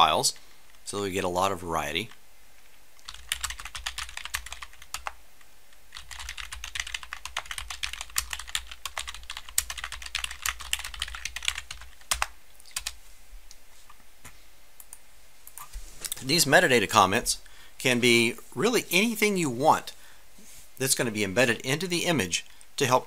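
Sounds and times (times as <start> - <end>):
computer keyboard typing: 3.0 - 5.2, 5.9 - 13.0.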